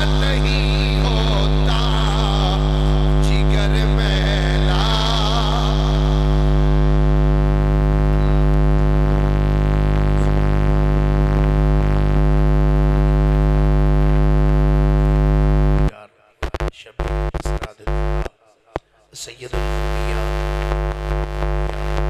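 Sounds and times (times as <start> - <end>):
loud droning hum: 0.0 - 15.9
faint wavering voice: 7.9 - 10.8.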